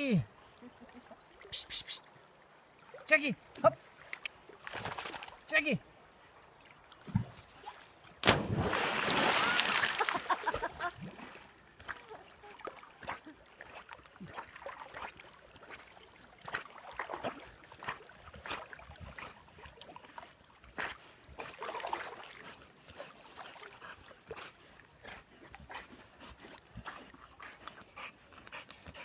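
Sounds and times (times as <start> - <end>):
water sloshing and splashing: 6.4 - 24.8.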